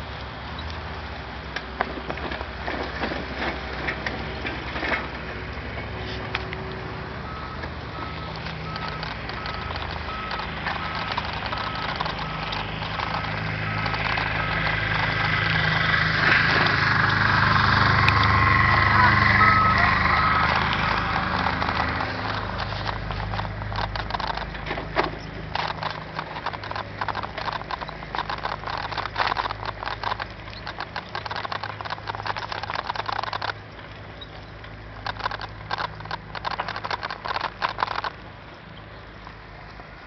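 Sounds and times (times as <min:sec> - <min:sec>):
vehicle engines humming: 0:00.0 - 0:40.0
rapid clicking and rattling: 0:07.3 - 0:38.3.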